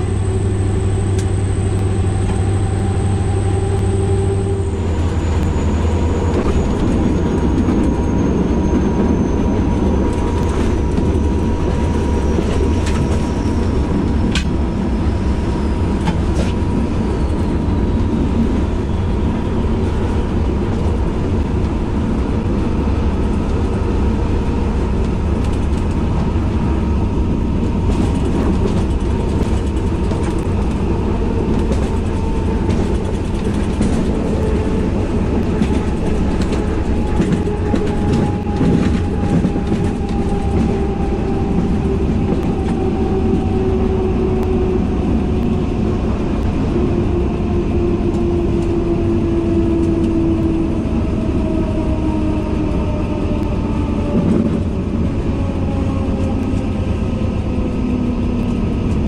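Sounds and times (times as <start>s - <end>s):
whine dropping in pitch: 0.0s - 20.0s
locomotive engine and wheels rumbling: 0.0s - 59.0s.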